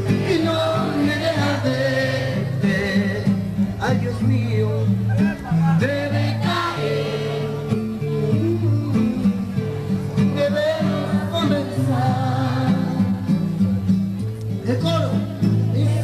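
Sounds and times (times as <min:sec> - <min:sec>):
guitar: 0:00.0 - 0:16.0.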